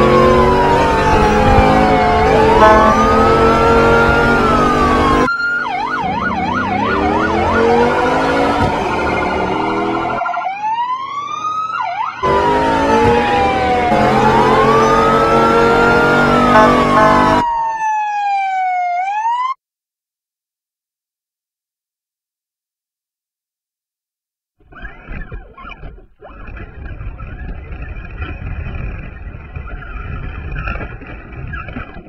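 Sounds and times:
police siren wailing and yelping: 0.0s - 19.6s.

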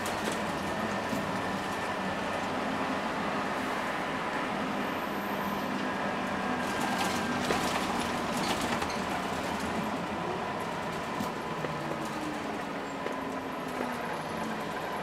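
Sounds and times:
bus diesel engine running: 0.0s - 15.0s.

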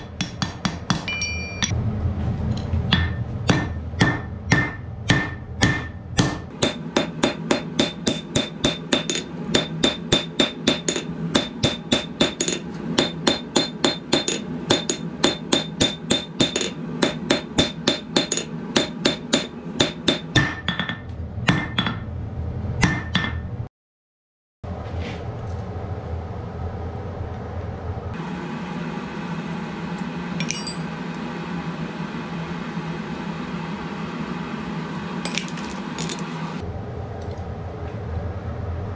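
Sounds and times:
hammer ringing on anvil: 0.0s - 1.8s, 2.9s - 22.0s
steady hum: 0.0s - 23.6s, 24.7s - 38.9s.

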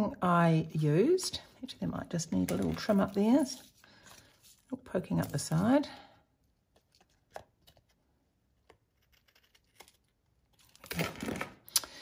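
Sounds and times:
scissors rasping cut through card: 8.6s - 10.0s.

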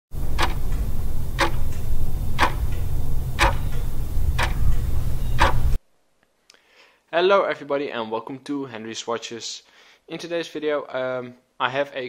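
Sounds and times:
clock ticking loudly: 0.2s - 1.8s, 2.4s - 4.6s, 5.4s - 5.8s
steady low drone: 0.2s - 5.8s.

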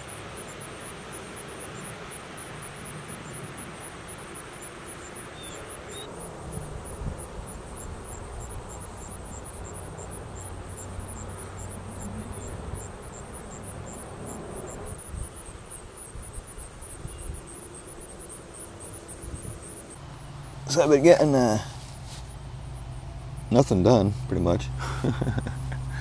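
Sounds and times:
faint high ticking: 1.1s - 15.1s
low drone: 6.0s - 15.0s.

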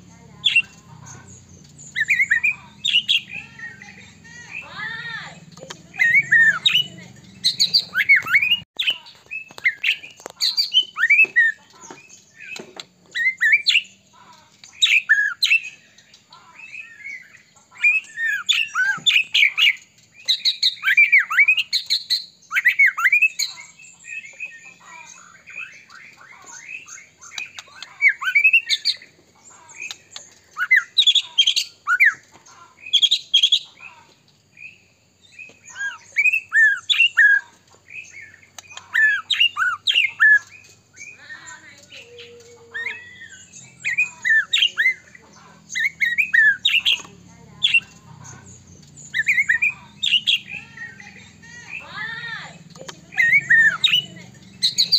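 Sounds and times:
songbird whistling song: 0.1s - 54.9s.

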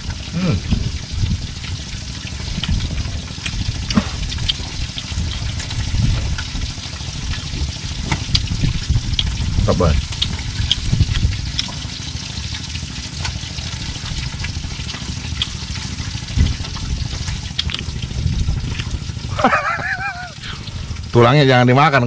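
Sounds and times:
low rumble: 0.0s - 11.6s, 15.6s - 21.4s
hot oil sizzling and crackling: 0.0s - 22.0s.

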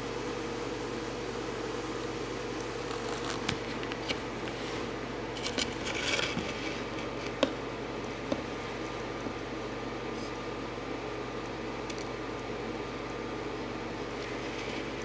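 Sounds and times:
low room hum: 0.0s - 15.0s
scraping rustle: 2.9s - 7.4s.

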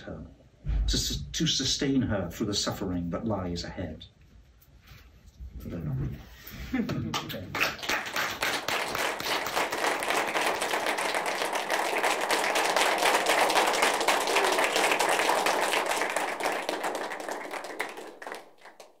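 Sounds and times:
audience applauding: 7.5s - 19.0s.

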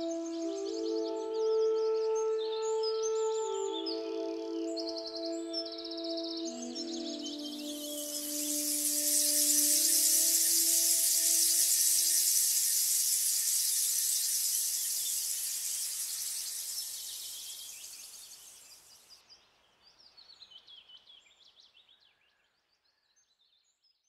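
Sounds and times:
held music note: 0.0s - 13.3s
birds chirping: 0.0s - 19.1s
high-pitched insect chorus: 3.6s - 19.1s.

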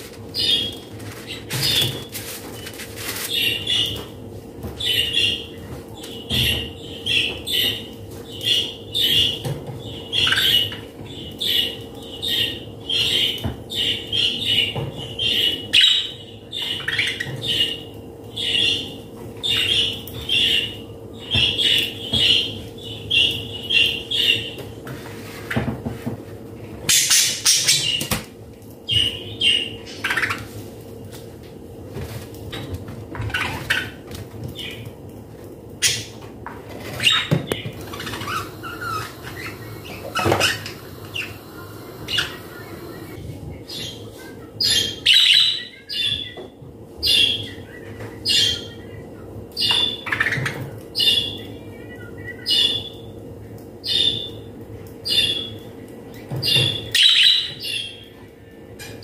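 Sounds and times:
small bird chirping: 37.1s - 43.2s
faint steady hum: 37.4s - 43.9s.

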